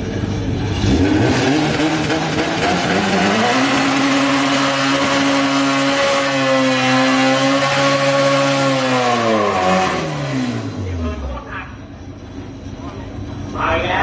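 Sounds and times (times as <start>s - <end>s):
car engine revving high: 0.6s - 11.5s.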